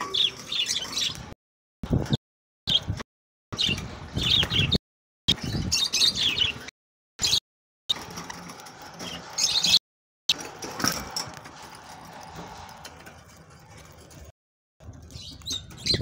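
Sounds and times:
low bird chatter: 0:00.0 - 0:03.0, 0:03.6 - 0:16.0.

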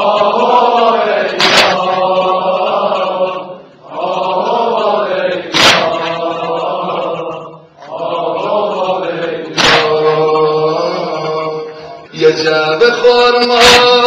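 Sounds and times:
sharp hits: 0:01.3 - 0:02.2, 0:05.5 - 0:06.5, 0:09.5 - 0:10.5.

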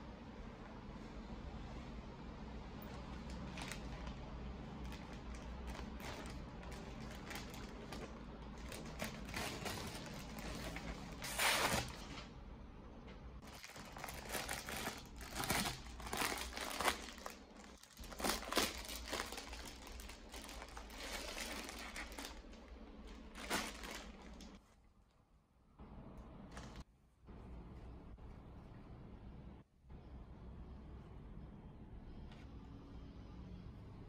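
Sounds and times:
plastic packaging crinkling: 0:02.9 - 0:12.3, 0:13.4 - 0:24.6.

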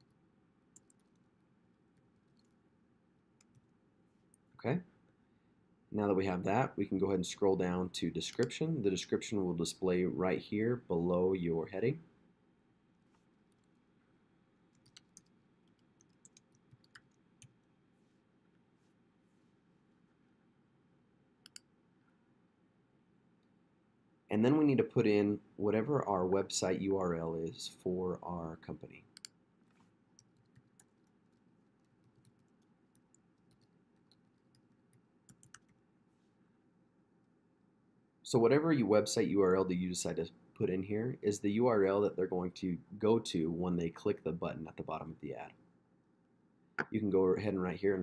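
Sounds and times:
faint keyboard typing: 0:00.0 - 0:01.3, 0:01.9 - 0:02.6, 0:03.4 - 0:04.5, 0:08.2 - 0:08.6, 0:13.1 - 0:13.9, 0:14.7 - 0:17.7, 0:21.4 - 0:21.7, 0:29.1 - 0:35.8.

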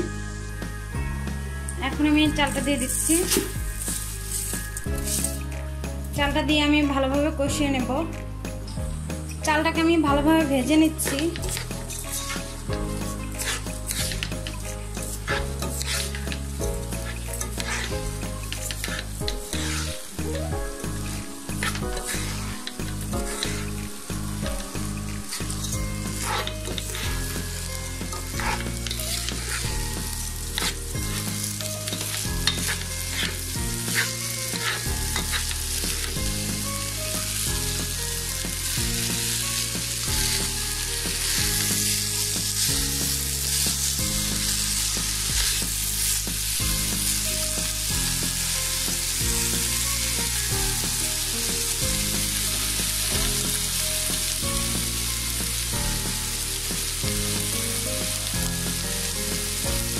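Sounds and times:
rice sizzling in oil: 0:00.0 - 0:06.2, 0:09.2 - 0:59.9
low background music: 0:00.0 - 0:59.9
spatula scraping pan: 0:02.5 - 0:05.4, 0:11.1 - 0:20.1, 0:20.9 - 0:36.3.

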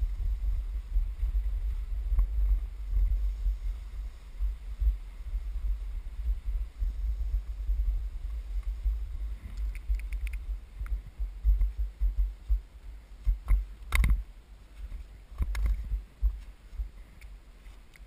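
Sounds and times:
skis sliding over snow: 0:00.0 - 0:13.8
wind buffeting microphone: 0:00.0 - 0:18.0
sharp clicks: 0:09.5 - 0:11.0.

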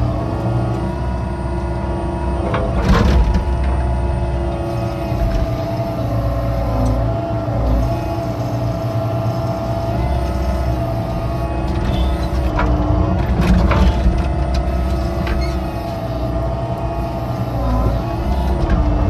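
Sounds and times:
excavator diesel engine running: 0:00.0 - 0:19.0.

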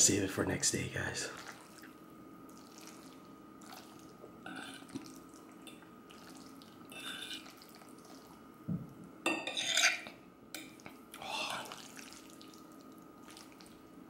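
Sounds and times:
wet sticky eating sounds: 0:01.3 - 0:08.4, 0:10.8 - 0:13.9.

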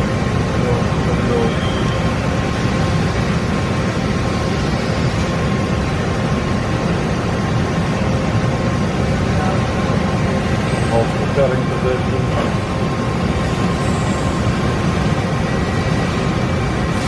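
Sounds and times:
milling machine running: 0:00.0 - 0:17.0.

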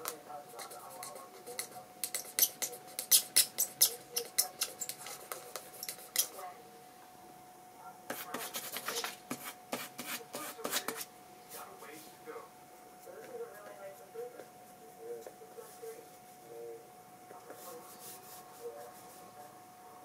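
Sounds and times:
faint steady hum: 0:00.0 - 0:20.0
pen scratching on paper: 0:00.5 - 0:06.4, 0:08.1 - 0:11.1.

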